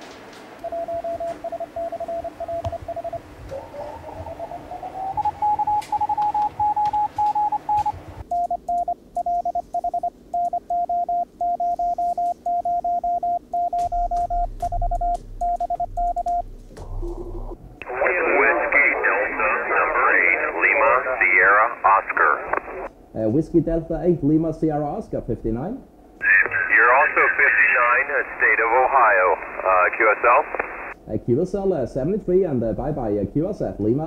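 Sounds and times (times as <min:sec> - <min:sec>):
morse code tone: 0:05.1 - 0:08.5
radio band hiss: 0:17.8 - 0:22.9, 0:26.2 - 0:31.0.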